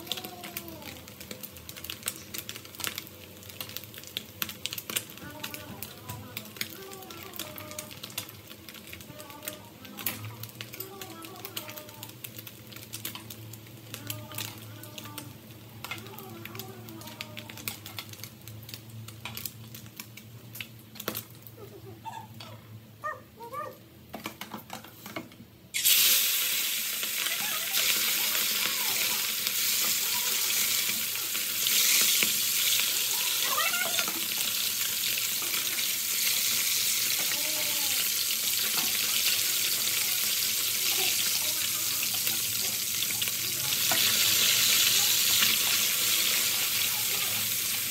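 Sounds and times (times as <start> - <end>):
fish sizzling in oil: 0.0 - 21.8, 25.1 - 47.9
tongs clicking on frying pan: 14.0 - 21.2.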